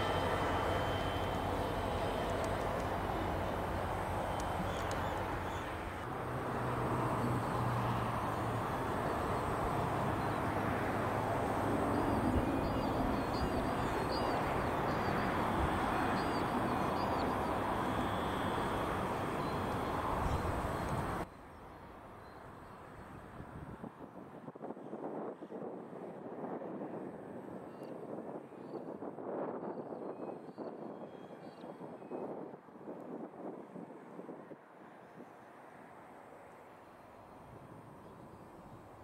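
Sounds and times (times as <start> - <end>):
train wheels rumbling: 0.0 - 6.0
low engine hum: 0.0 - 21.3.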